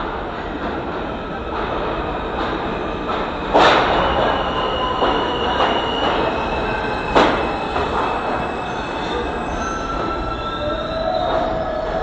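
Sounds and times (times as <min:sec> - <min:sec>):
subway train wheels rumbling: 0:00.0 - 0:12.0
high wheel squeal: 0:04.0 - 0:12.0.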